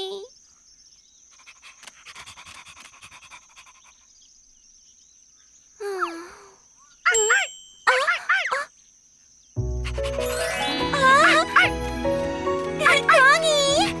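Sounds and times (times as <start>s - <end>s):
puppy panting: 9.8s - 10.5s.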